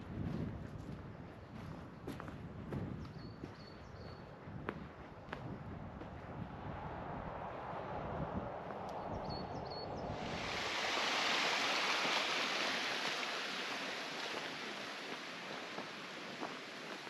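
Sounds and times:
wind buffeting microphone: 0.0s - 17.0s
rushing water in a canal: 10.1s - 17.0s.

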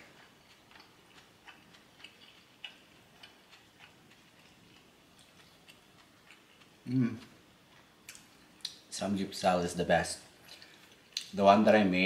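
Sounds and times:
chewing: 0.0s - 8.8s.

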